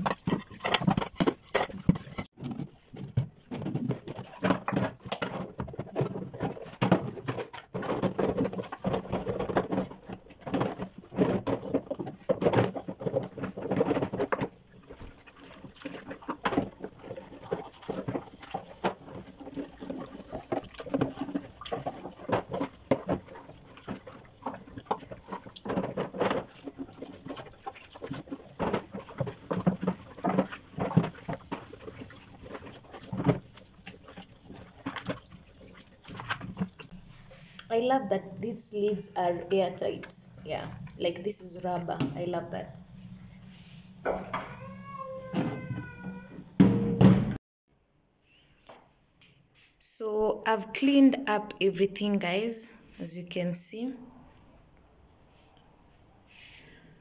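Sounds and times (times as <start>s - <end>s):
plastic containers clattering: 0.0s - 43.1s.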